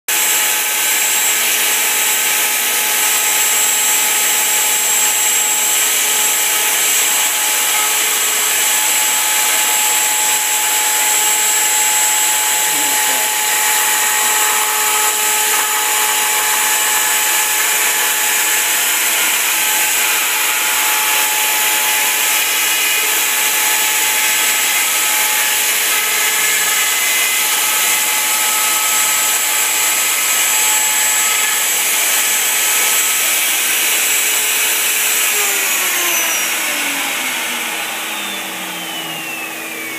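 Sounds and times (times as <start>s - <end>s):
router spindle whine: 0.1s - 39.9s.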